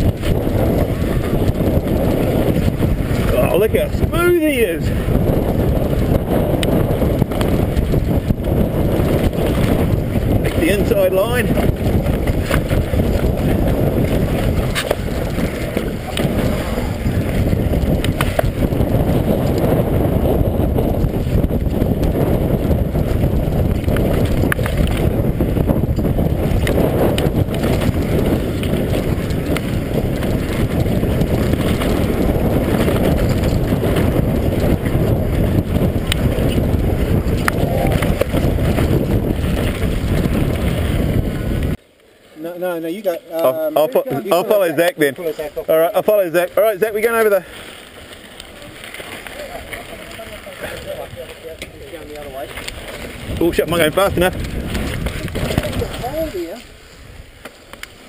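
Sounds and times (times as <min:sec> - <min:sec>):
tyre noise on dirt: 0:00.0 - 0:41.8, 0:44.1 - 0:58.0
wind buffeting microphone: 0:00.0 - 0:41.9, 0:43.0 - 0:58.0
bike clicks and knocks: 0:11.5 - 0:19.7, 0:23.1 - 0:40.8, 0:54.3 - 0:56.2.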